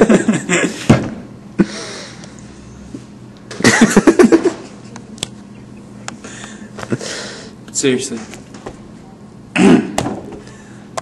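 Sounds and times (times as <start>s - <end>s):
man laughing: 0.0s - 0.9s, 3.6s - 5.0s
breathy exhale: 1.6s - 2.3s, 6.2s - 7.6s.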